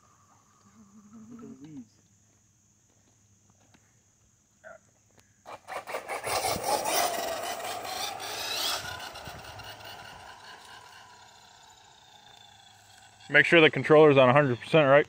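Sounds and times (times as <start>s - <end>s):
electric motor whine: 5.5s - 15.0s.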